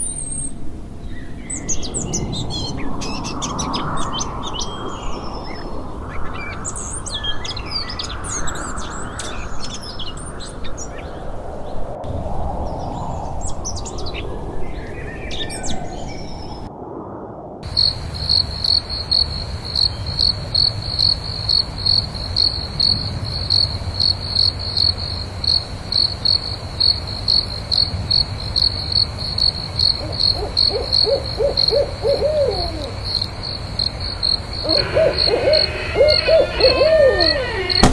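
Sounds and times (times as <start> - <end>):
crickets chirping: 17.6 - 37.9
owl hooting: 30.0 - 33.1, 34.6 - 37.9
birds singing: 34.2 - 37.9.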